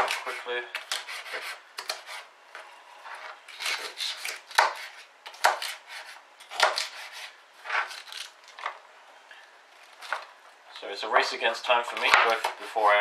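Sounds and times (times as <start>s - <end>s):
knife chopping cabbage on board: 0.0s - 2.2s, 3.6s - 7.9s, 11.9s - 12.9s.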